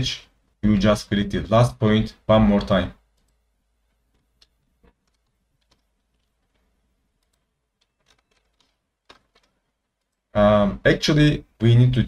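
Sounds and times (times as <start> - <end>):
faint computer clicks: 3.1 - 10.2.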